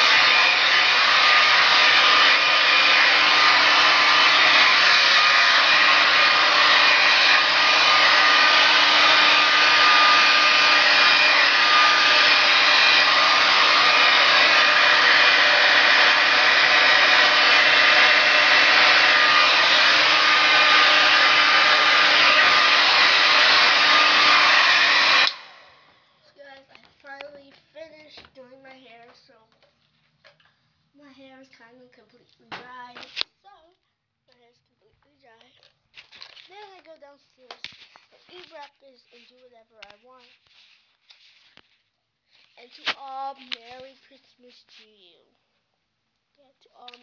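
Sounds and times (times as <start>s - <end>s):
hair dryer running: 0.0s - 26.0s.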